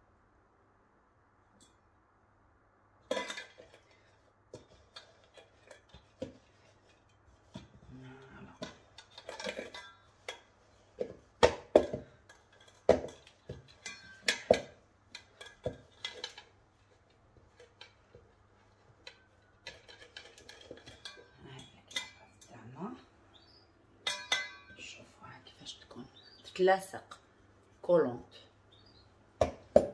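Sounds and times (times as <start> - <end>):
metal bowl knocking and clattering: 3.0 - 25.0, 29.4 - 29.9
faint scraping and clicks: 12.2 - 22.6.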